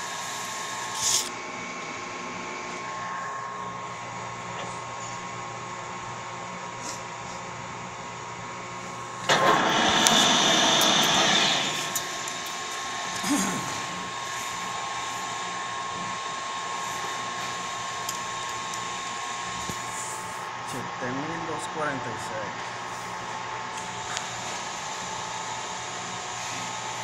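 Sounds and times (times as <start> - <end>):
metal lathe motor hum and whine: 0.0 - 27.0
loud rushing noise: 9.3 - 12.2.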